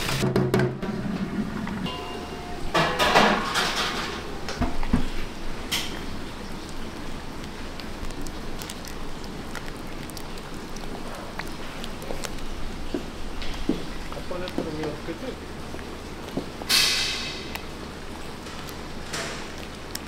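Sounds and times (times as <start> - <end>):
steady background noise: 0.0 - 20.0
dishes and utensils clattering: 1.9 - 6.0.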